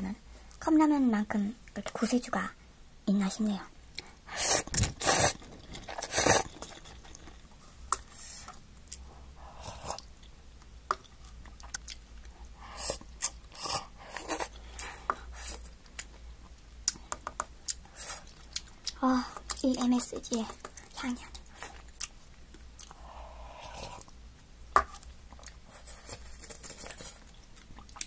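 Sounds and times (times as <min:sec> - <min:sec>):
person slurping broth: 0:04.3 - 0:06.6.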